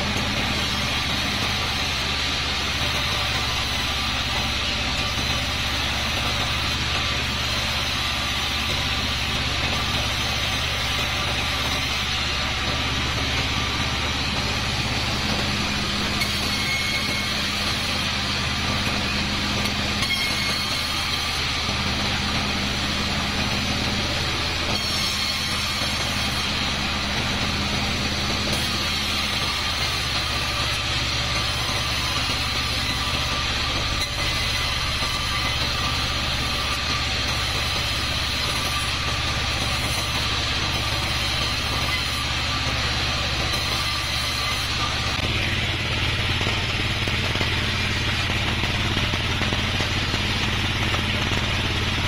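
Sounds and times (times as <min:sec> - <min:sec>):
bandsaw sawing wood: 0:00.0 - 0:52.0.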